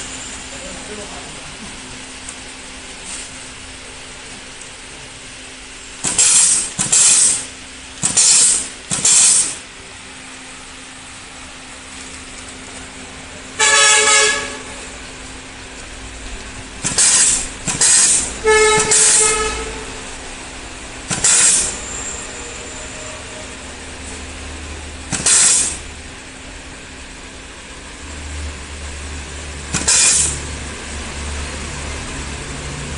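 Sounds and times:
short hisses of air: 0:06.0 - 0:09.6, 0:16.8 - 0:19.4, 0:21.1 - 0:21.8, 0:25.1 - 0:25.8, 0:29.8 - 0:30.4.

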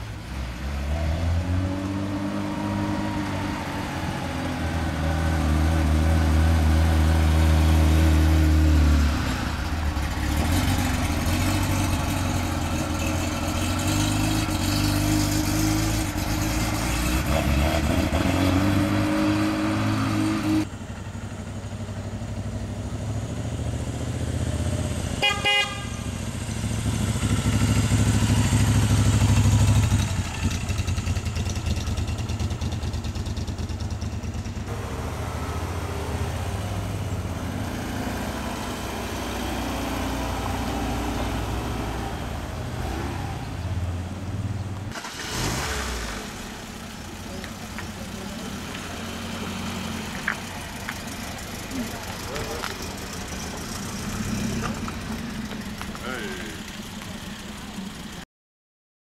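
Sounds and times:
cars driving slowly past: 0:00.0 - 0:58.2
short car horn toot: 0:25.2 - 0:26.1.

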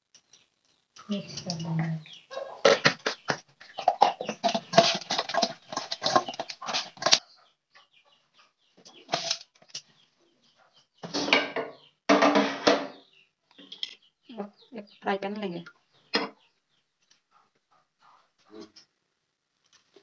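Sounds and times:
bird calls: 0:00.2 - 0:12.0.

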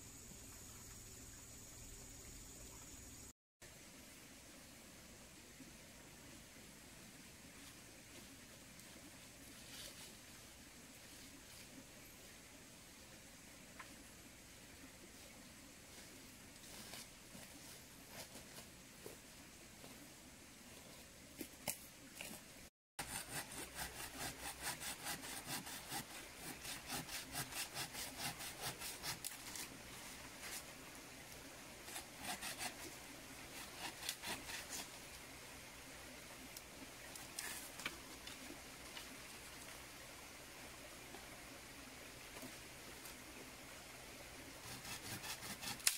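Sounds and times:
machete scraping wooden pole: 0:23.0 - 0:29.7, 0:31.8 - 0:35.0, 0:44.7 - 0:45.9.

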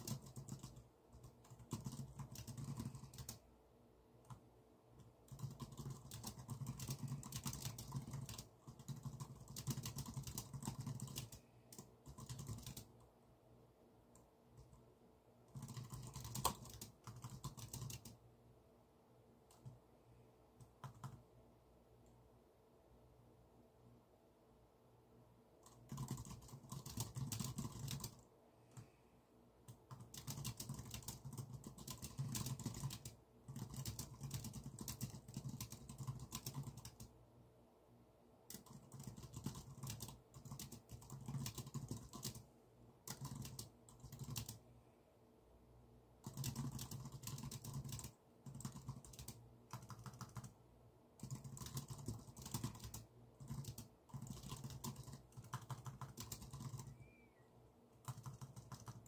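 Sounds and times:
keyboard typing: 0:00.0 - 0:03.4, 0:04.2 - 0:13.1, 0:15.5 - 0:18.2, 0:19.5 - 0:19.8, 0:20.6 - 0:21.3, 0:25.6 - 0:29.0, 0:29.6 - 0:37.1, 0:38.5 - 0:44.6, 0:46.2 - 0:50.6, 0:51.2 - 0:57.2, 0:58.0 - 0:59.0.

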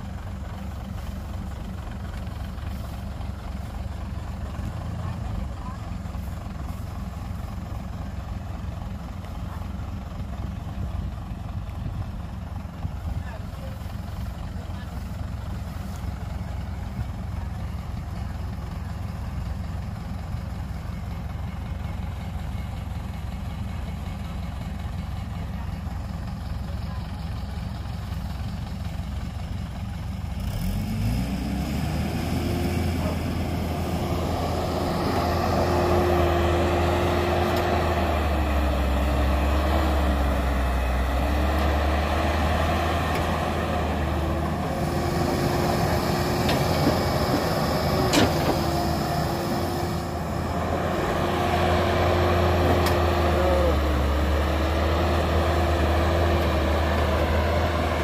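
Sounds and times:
excavator diesel engine revving: 0:00.0 - 0:58.0.

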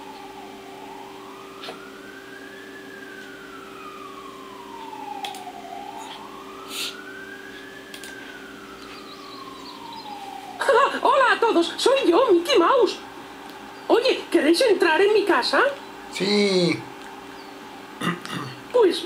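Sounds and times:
siren wailing: 0:00.0 - 0:18.0
steady low hum: 0:00.0 - 0:19.0.

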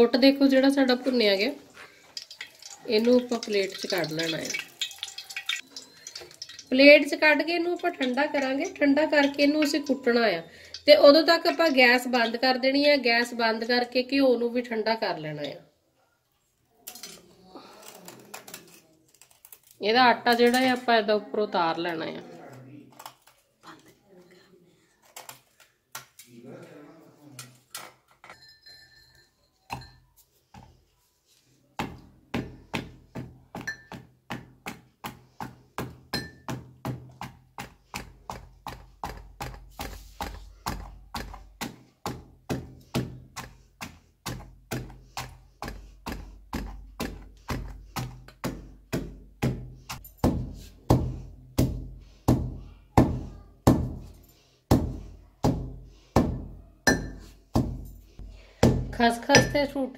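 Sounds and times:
wooden pestle pounding in mortar: 0:31.8 - 0:54.1, 0:54.7 - 0:57.8.

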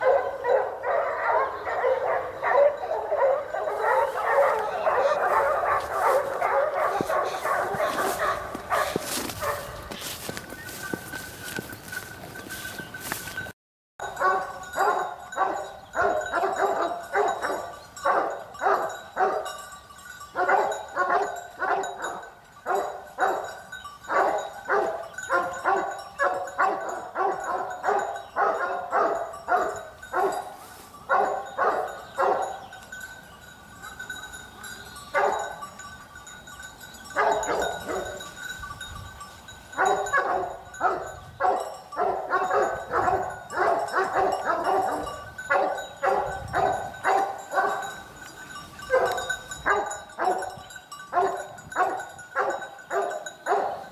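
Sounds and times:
dog barking and yapping: 0:00.0 - 0:09.9, 0:14.0 - 0:19.5, 0:20.4 - 0:30.5, 0:31.1 - 0:32.6, 0:35.2 - 0:35.6, 0:37.2 - 0:38.2, 0:39.8 - 0:48.0, 0:48.9 - 0:50.5, 0:51.1 - 0:53.8.

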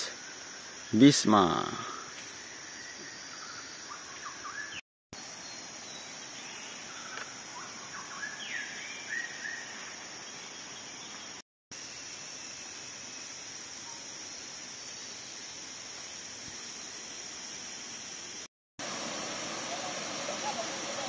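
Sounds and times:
high-pitched insect drone: 0:00.0 - 0:21.0
whistled bird chirps: 0:02.8 - 0:04.8, 0:05.4 - 0:09.7.

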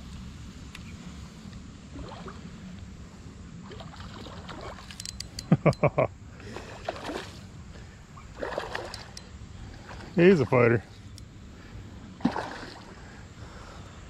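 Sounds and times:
fish splashing at surface: 0:12.2 - 0:12.9
river water rushing: 0:12.2 - 0:13.0.

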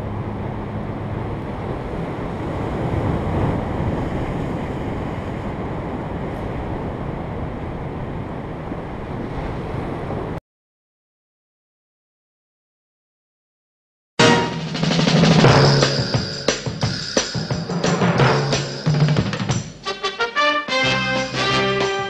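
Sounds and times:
wind buffeting microphone: 0:00.0 - 0:10.4
sea surf breaking on rocks: 0:00.8 - 0:10.4.

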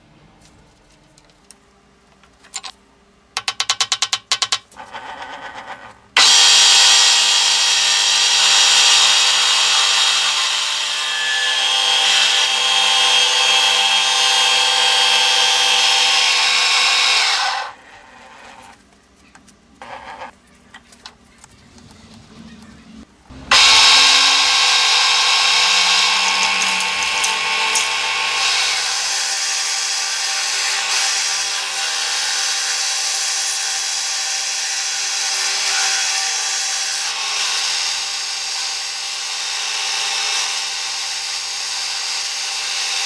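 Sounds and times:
end mill cutting steel: 0:04.8 - 0:18.6, 0:23.3 - 0:38.0.

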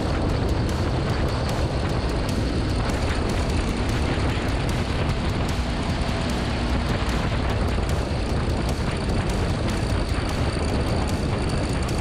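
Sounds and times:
motorcycle engine running: 0:00.0 - 0:12.0
wind buffeting microphone: 0:00.0 - 0:12.0.

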